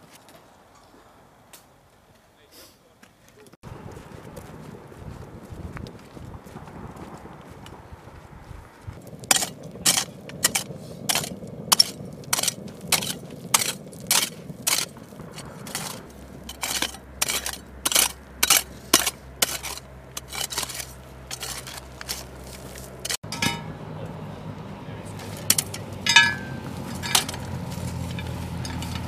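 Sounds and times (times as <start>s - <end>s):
shovel crunching into gravel: 9.0s - 23.7s, 25.1s - 29.0s.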